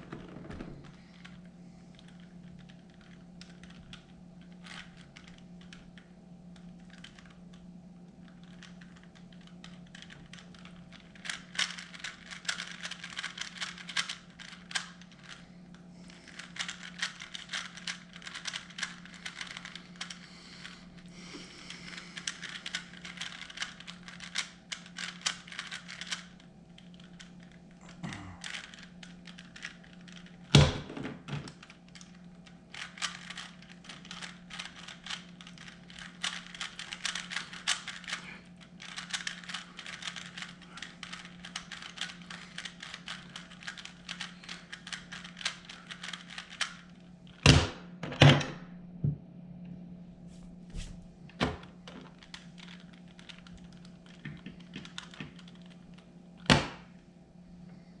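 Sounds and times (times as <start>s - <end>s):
puzzle cube clicking as turned: 1.2s - 5.8s, 8.2s - 15.4s, 16.3s - 20.8s, 21.4s - 27.5s, 28.4s - 30.6s, 31.5s - 38.2s, 38.8s - 46.9s, 52.2s - 55.8s.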